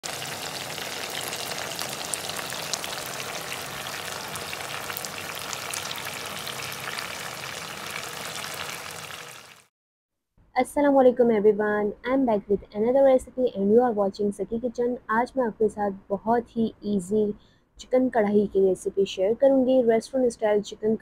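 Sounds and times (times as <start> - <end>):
chicken frying in hot oil: 0.0 - 9.7.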